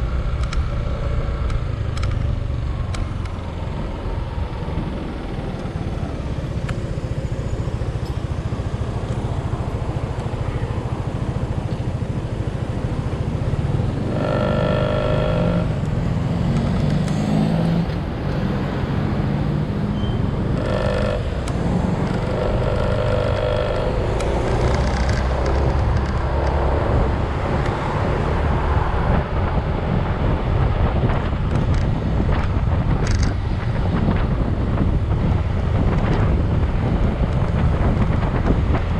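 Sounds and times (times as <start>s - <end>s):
vehicle rumble on road: 0.0s - 38.9s.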